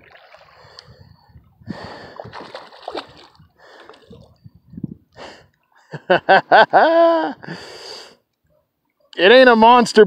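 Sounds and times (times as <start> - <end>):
water splashing and sloshing: 0.0 - 4.6.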